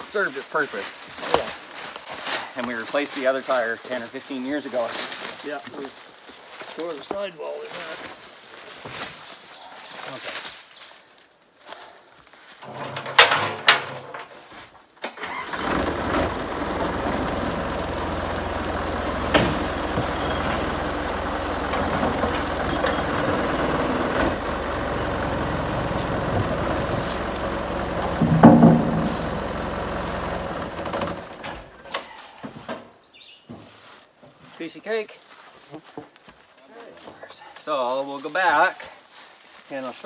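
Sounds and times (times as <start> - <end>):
diesel engine running: 15.2 - 31.9.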